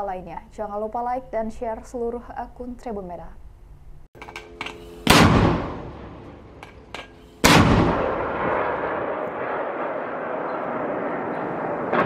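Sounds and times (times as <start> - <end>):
mortar blasts echoing: 5.0 - 12.0.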